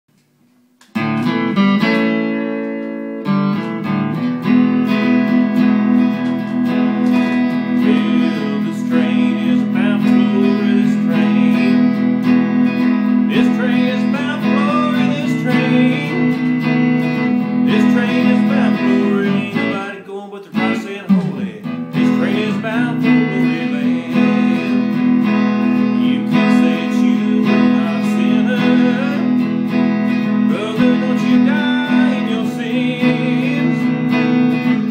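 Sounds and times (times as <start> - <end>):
electric guitar strumming: 0.8 - 34.9
man singing: 7.3 - 34.9.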